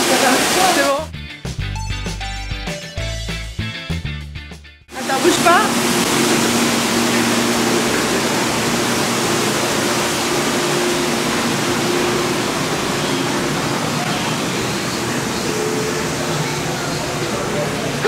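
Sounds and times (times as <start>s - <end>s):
falling water rushing hiss: 0.0s - 1.0s, 4.9s - 18.0s.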